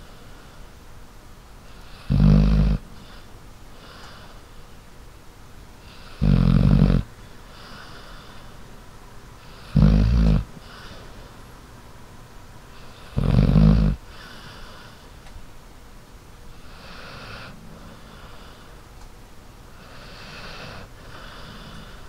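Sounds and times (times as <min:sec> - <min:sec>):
dog snoring: 0:01.6 - 0:03.2, 0:05.8 - 0:08.6, 0:09.4 - 0:11.0, 0:12.7 - 0:15.0, 0:16.5 - 0:18.7, 0:19.7 - 0:22.0
dog breathing: 0:01.6 - 0:04.8, 0:05.8 - 0:08.6, 0:09.4 - 0:11.4, 0:12.7 - 0:15.2, 0:16.5 - 0:18.8, 0:19.7 - 0:22.0.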